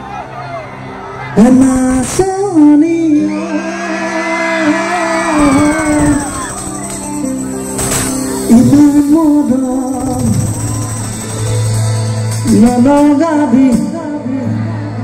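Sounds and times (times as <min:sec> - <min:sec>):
man singing: 0:01.4 - 0:06.4, 0:08.5 - 0:11.2, 0:12.4 - 0:15.0
band accompaniment: 0:04.9 - 0:14.7.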